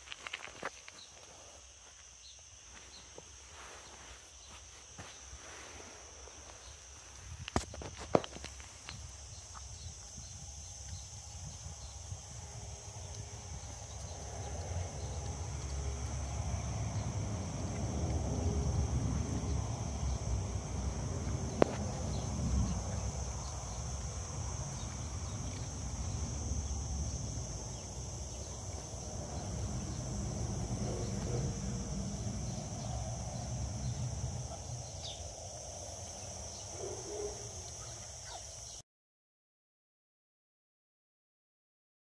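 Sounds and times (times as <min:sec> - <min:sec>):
high insect drone: 0:00.0 - 0:38.8
wind rumble on microphone: 0:07.2 - 0:36.0.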